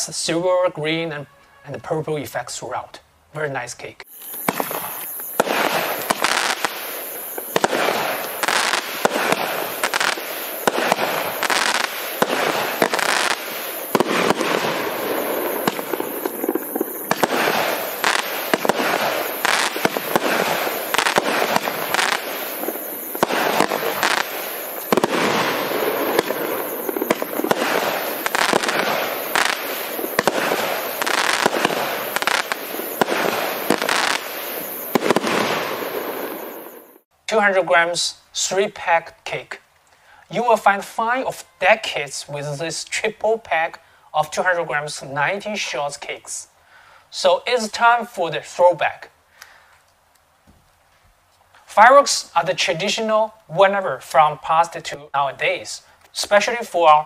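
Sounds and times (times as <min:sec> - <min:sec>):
fireworks crackling: 0:03.5 - 0:37.1, 0:51.6 - 0:57.0
fireworks shots and bursts: 0:04.1 - 0:37.0.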